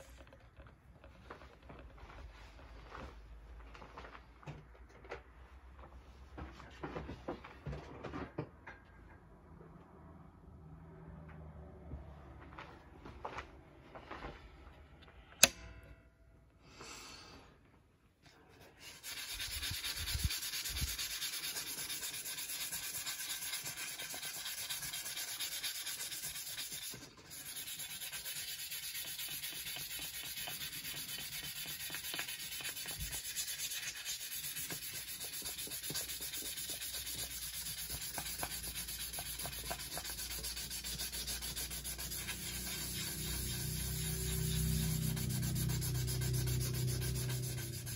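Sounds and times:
sandpaper rasping on steel: 0:18.6 - 0:47.9.

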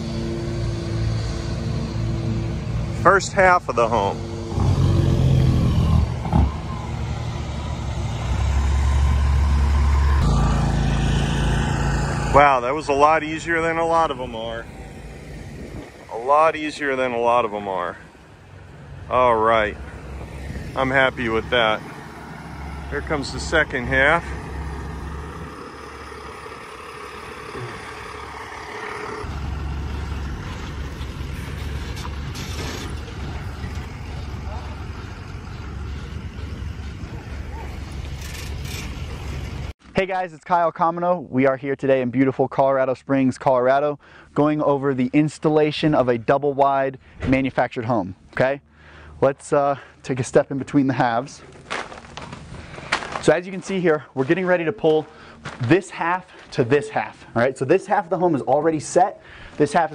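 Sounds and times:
truck engine rumbling: 0:00.0 - 0:40.3, 0:44.0 - 0:59.9.

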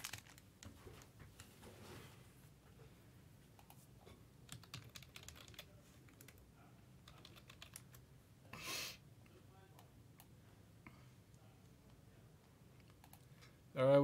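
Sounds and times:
computer keyboard typing: 0:04.4 - 0:06.4, 0:07.0 - 0:08.0, 0:12.8 - 0:13.3.

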